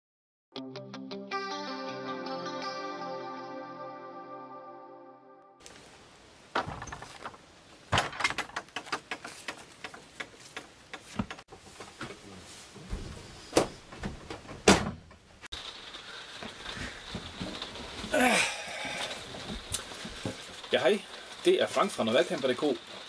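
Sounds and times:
caravan door clicks and knocks: 7.9 - 11.4, 13.6 - 15.2
footsteps inside caravan: 8.0 - 15.5, 16.4 - 20.7.

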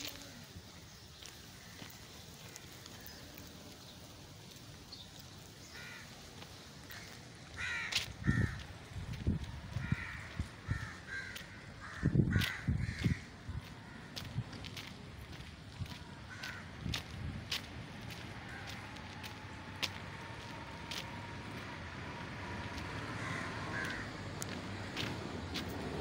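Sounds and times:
crows cawing: 1.4 - 3.4, 5.6 - 8.7, 9.7 - 14.3, 15.8 - 17.2, 18.1 - 25.1.

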